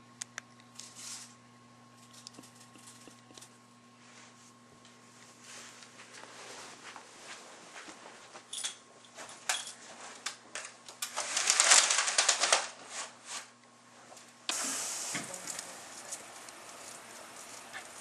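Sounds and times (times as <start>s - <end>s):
steady hiss: 14.5s - 18.0s.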